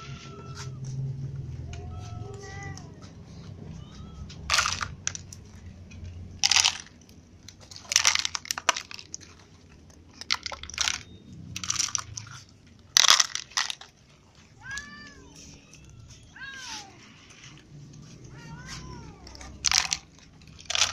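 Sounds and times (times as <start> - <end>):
cat meowing faintly: 0.0 - 4.5, 14.6 - 19.6
dry kibble crunching rustles: 0.0 - 20.9.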